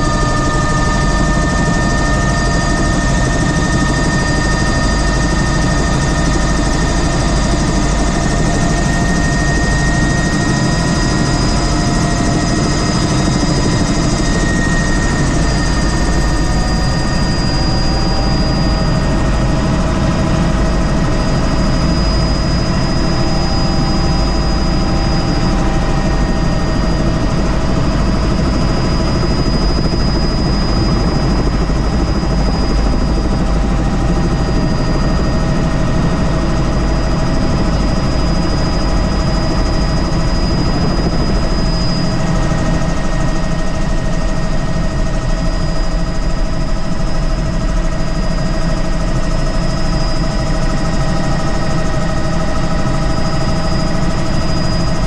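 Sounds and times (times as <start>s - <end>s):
helicopter engine and rotor: 0.0s - 55.0s.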